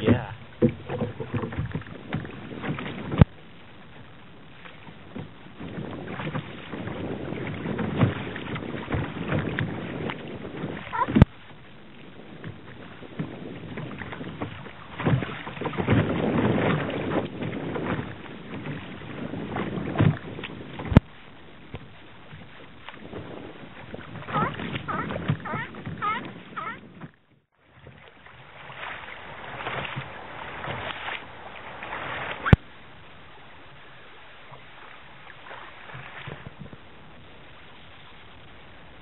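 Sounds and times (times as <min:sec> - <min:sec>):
paddle strokes splashing: 0:00.0 - 0:39.0
water sloshing against hull: 0:00.0 - 0:39.0.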